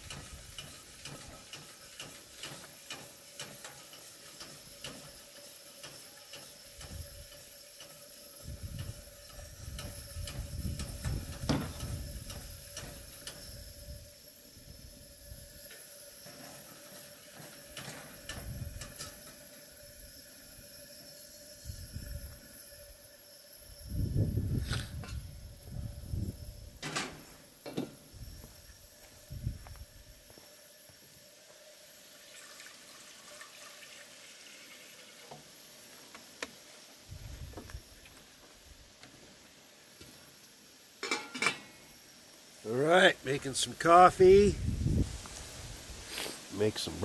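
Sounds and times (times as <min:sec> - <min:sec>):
camp stove burner hissing: 0:00.0 - 0:47.0
wind rumble on microphone: 0:08.4 - 0:14.1, 0:18.4 - 0:18.9, 0:21.6 - 0:22.4, 0:23.8 - 0:26.8, 0:29.2 - 0:30.2, 0:37.1 - 0:37.8, 0:44.3 - 0:46.0.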